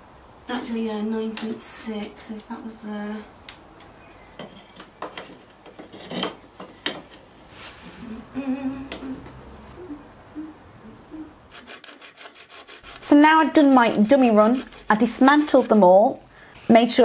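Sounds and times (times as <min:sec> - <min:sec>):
person humming softly: 0:07.8 - 0:11.5.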